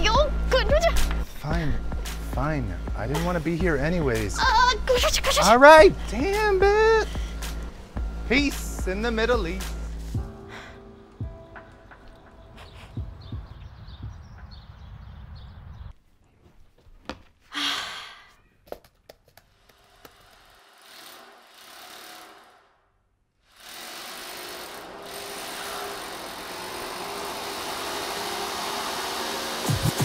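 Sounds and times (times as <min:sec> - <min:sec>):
breathy sigh: 0:10.4 - 0:10.9, 0:17.5 - 0:18.4
rushing machine noise: 0:23.6 - 0:30.0.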